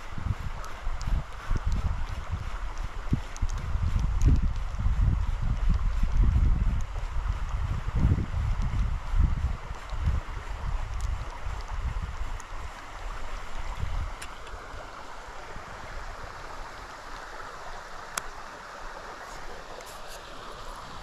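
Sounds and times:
wind buffeting microphone: 0.0s - 14.8s
creek flowing: 0.0s - 21.0s
faint ticks: 0.6s - 4.8s, 10.8s - 12.9s.

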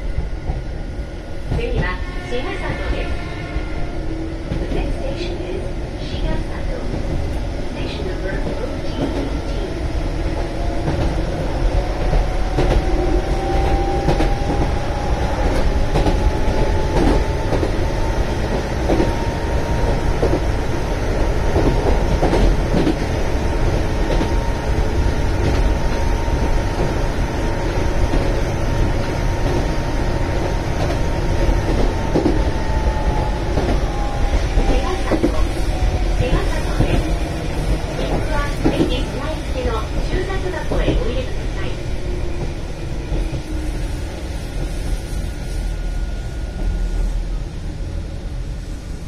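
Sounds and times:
train wheels rumbling on rail: 0.0s - 49.0s.

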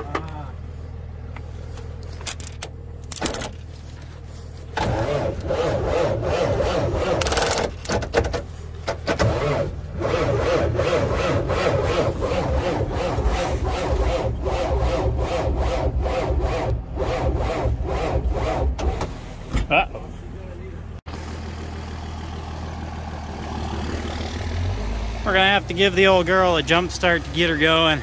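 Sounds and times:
starter cranking engine: 4.8s - 8.1s.

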